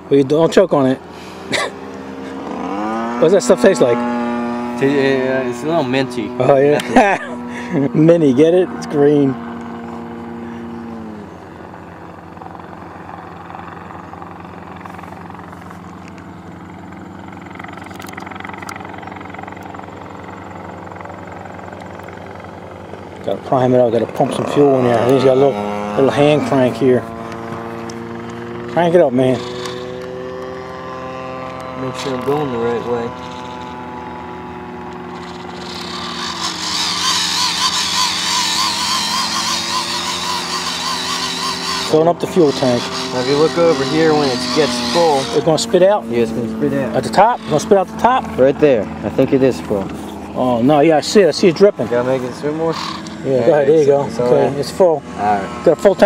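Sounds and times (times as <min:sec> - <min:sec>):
engine droning hum: 0:00.0 - 0:56.0
hand-crank fuel pump squeaking: 0:35.1 - 0:48.2, 0:49.0 - 0:53.4.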